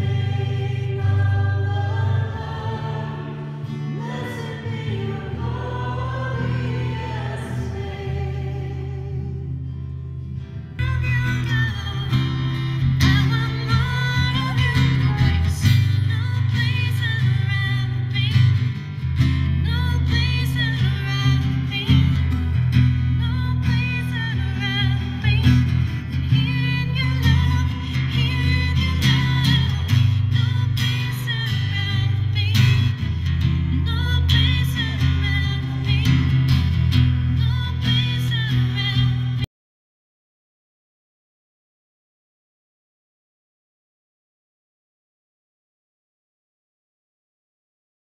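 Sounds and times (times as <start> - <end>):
voices singing: 0.0 - 9.6
strummed guitar: 0.0 - 39.4.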